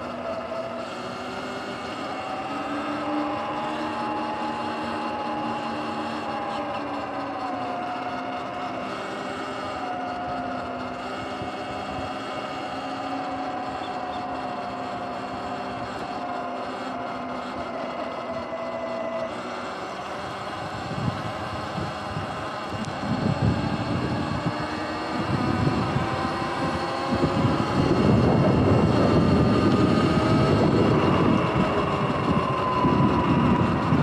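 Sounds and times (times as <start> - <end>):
electric motor whine: 0.0 - 34.0
wind rush: 20.4 - 34.0.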